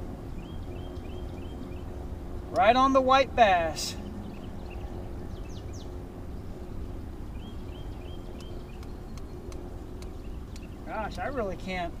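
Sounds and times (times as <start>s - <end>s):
wind and water rumble: 0.0s - 12.0s
small bird chirping: 0.3s - 2.0s, 4.0s - 11.3s.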